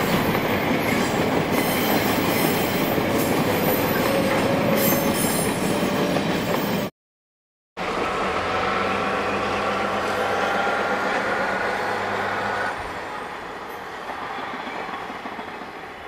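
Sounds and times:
locomotive engine drone: 7.8 - 13.7.

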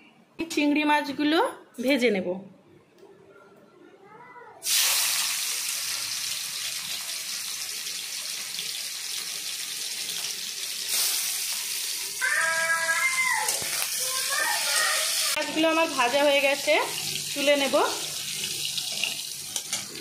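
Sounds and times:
shrimp sizzling in hot oil: 4.6 - 12.4, 13.5 - 20.0.

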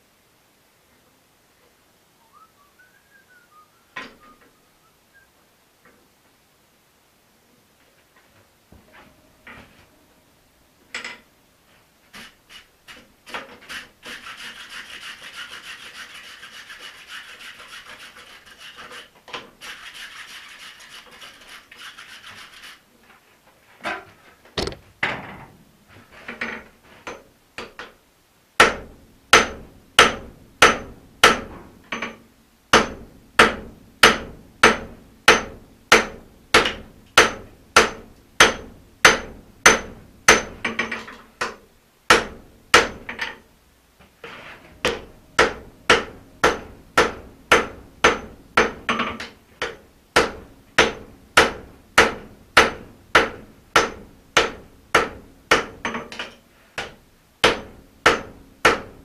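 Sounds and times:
hammer striking hot metal on anvil: 29.4 - 31.5, 32.7 - 40.6, 44.8 - 49.0.

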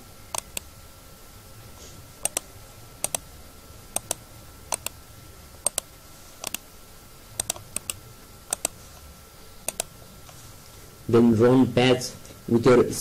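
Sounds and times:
faint high whine: 0.0 - 13.0
computer mouse buttons clicking: 0.3 - 0.7, 2.2 - 3.2, 4.0 - 5.0, 5.6 - 6.6, 7.4 - 8.8, 9.7 - 10.4.

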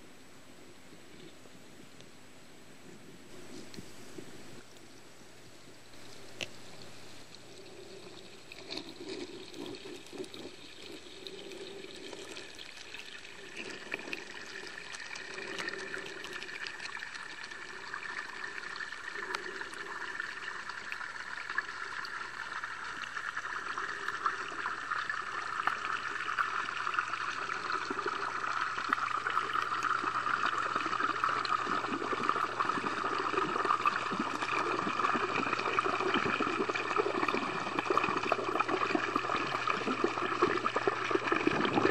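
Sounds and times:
faint underwater clicks: 3.6 - 23.3
underwater rushing and trickling: 5.6 - 41.9.

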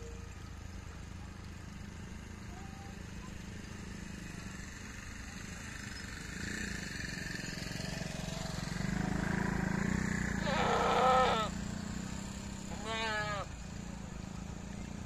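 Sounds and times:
goats bleating: 10.4 - 11.5, 12.7 - 13.5.

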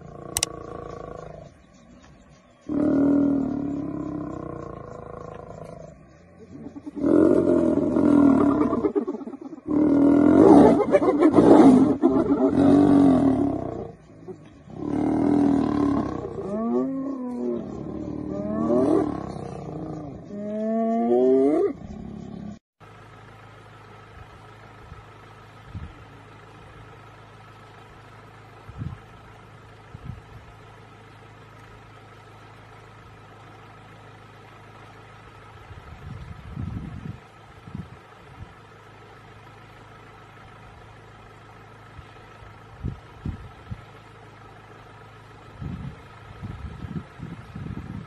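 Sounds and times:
low steady hum: 0.0 - 48.0
hyenas crying: 2.7 - 22.6
lion roaring and snarling: 2.7 - 22.6.

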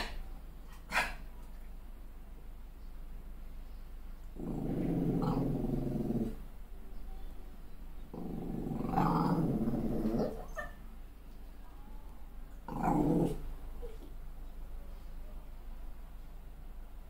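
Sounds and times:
puppy growling: 4.4 - 6.5, 8.0 - 10.8, 12.6 - 14.1.

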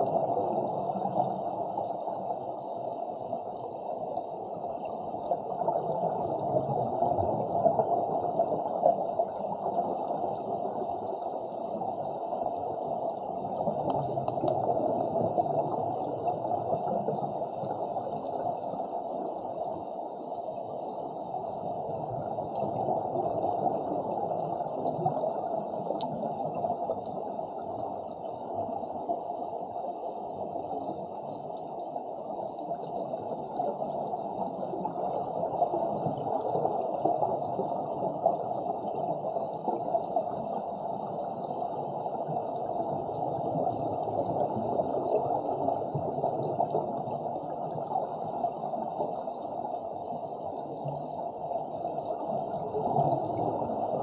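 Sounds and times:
muffled underwater rush: 0.0 - 54.0.

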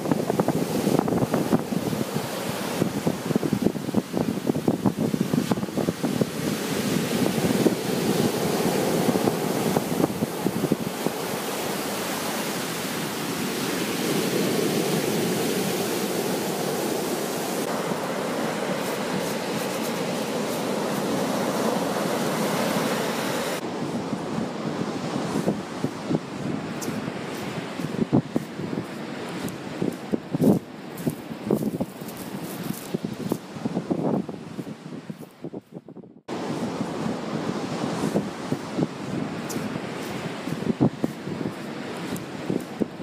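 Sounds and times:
ocean surf on sandy beach: 0.0 - 43.0
wind buffeting microphone: 0.0 - 43.0.

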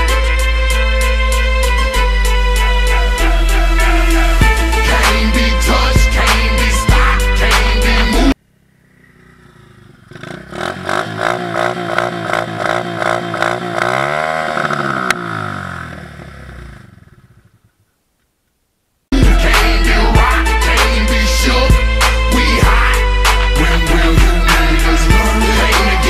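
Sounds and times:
dirt bike engine running: 2.6 - 18.0.

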